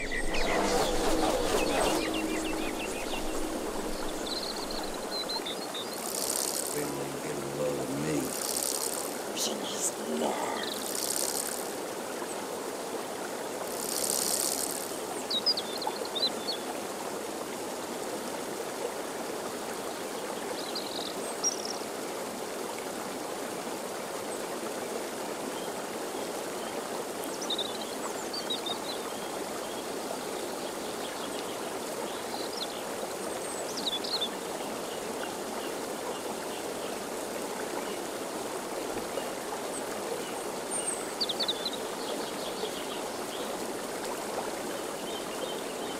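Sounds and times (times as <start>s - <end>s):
brief hiss: 0.0s - 5.3s
steady rushing noise: 0.0s - 11.6s.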